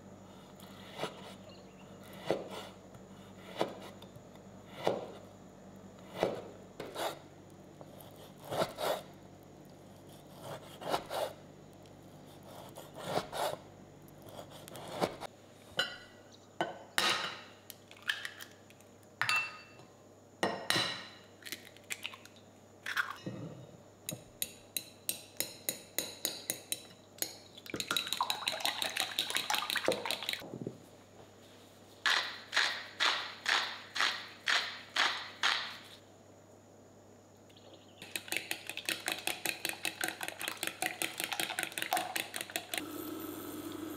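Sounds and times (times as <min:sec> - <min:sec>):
fork beating eggs against glass: 0:38.0 - 0:42.8.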